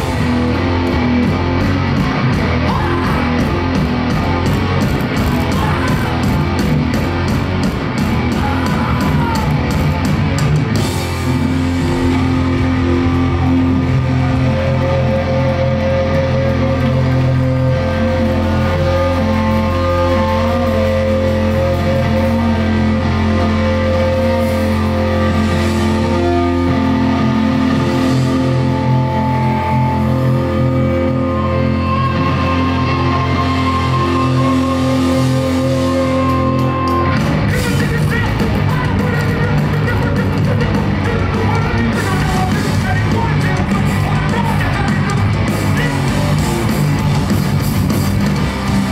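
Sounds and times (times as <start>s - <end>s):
low drone: 0.0s - 37.5s
drums and cymbals crashing: 0.0s - 48.9s
electric guitars and bass: 0.0s - 48.9s.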